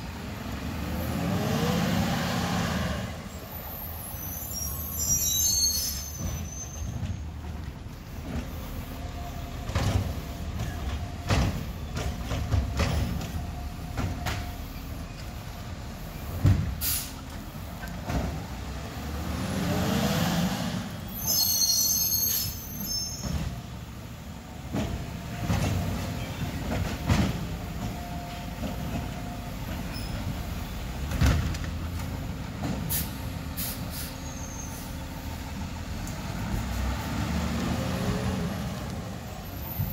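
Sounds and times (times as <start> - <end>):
high brake squeal: 3.2 - 7.2, 21.0 - 23.5, 29.8 - 30.6, 32.9 - 35.2, 39.3 - 39.9.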